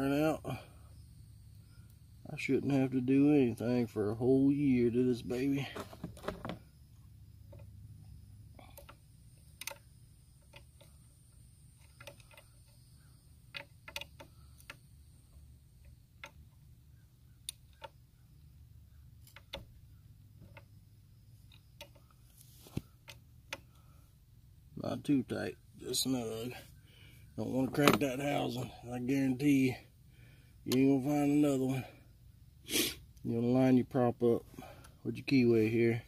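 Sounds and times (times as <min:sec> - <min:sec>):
low steady hum: 0:00.0 - 0:36.0
wrench metal clicks: 0:08.7 - 0:11.0, 0:11.8 - 0:12.8, 0:13.5 - 0:14.8.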